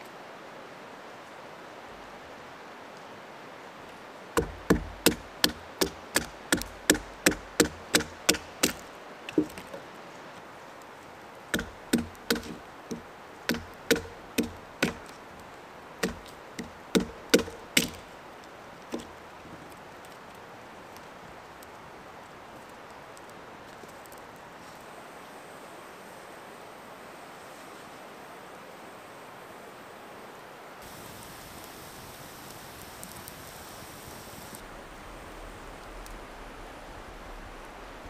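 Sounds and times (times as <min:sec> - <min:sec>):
wooden baton knocking on knife: 0:04.4 - 0:09.8, 0:11.6 - 0:15.1, 0:16.0 - 0:18.0.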